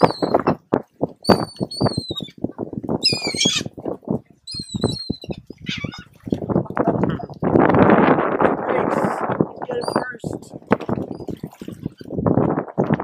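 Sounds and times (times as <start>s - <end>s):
gulls calling: 0.0s - 0.4s, 1.3s - 2.4s, 3.0s - 3.7s, 4.5s - 6.2s, 9.7s - 10.4s.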